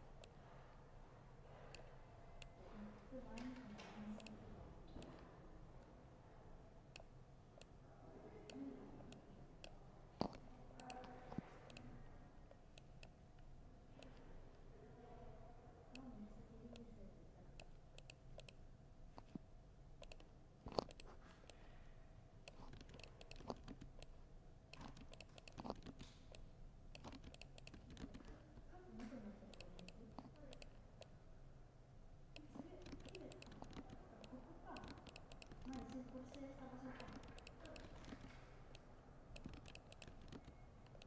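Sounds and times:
laptop keyboard typing: 9.6 - 11.8, 17.6 - 18.6, 20.0 - 21.6, 22.5 - 28.6, 29.5 - 30.9, 32.4 - 41.0.

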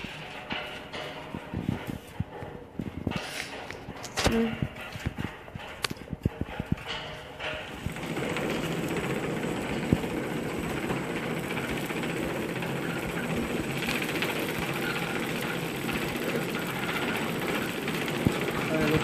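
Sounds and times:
packing machine clattering: 0.0 - 19.0.

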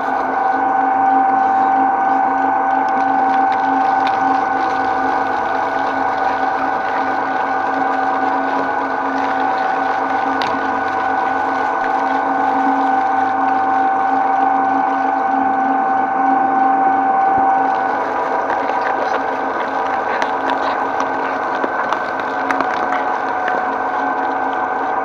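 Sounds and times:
shredder motor whine: 0.0 - 25.0.

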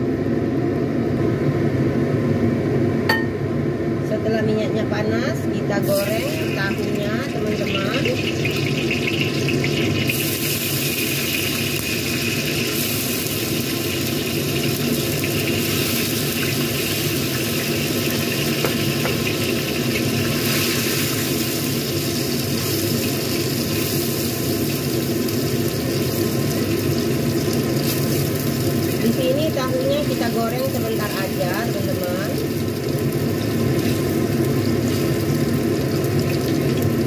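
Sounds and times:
steady low hum: 0.0 - 10.1
food sizzling in hot oil: 5.8 - 37.0.

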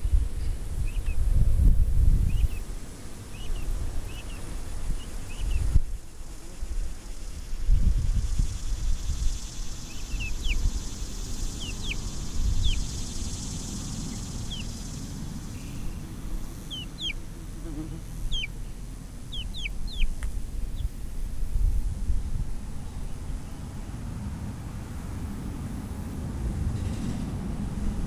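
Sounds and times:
chicks peeping: 0.8 - 1.2, 2.2 - 2.6, 3.3 - 5.8, 9.2 - 17.4, 18.1 - 21.0.

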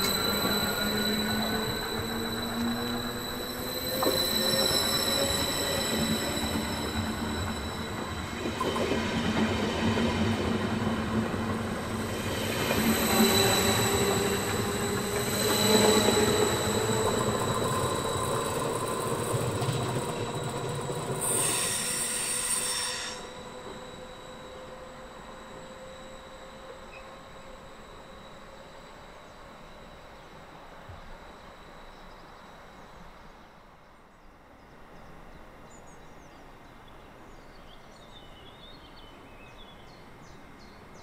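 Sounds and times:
train wheels rumbling on rail: 0.0 - 28.5
high-pitched whine: 0.0 - 33.5.

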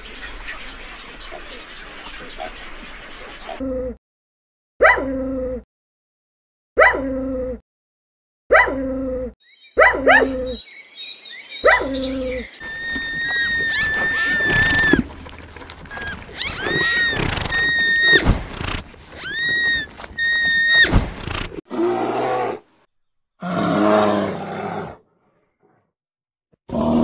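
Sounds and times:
high animal calls: 11.6 - 21.6
big cat roaring: 12.1 - 22.6, 23.4 - 25.0, 26.7 - 27.0.

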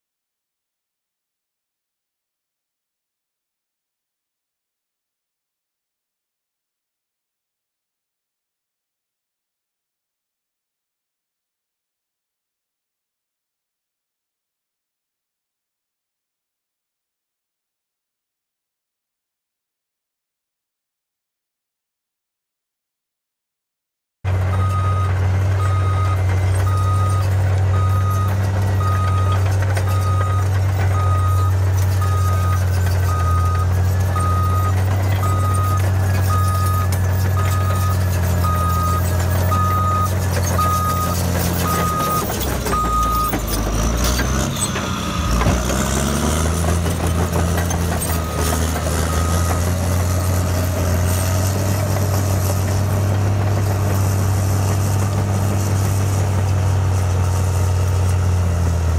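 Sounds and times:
bulldozer diesel engine: 24.3 - 58.9
backup alarm beeping: 24.5 - 43.9.

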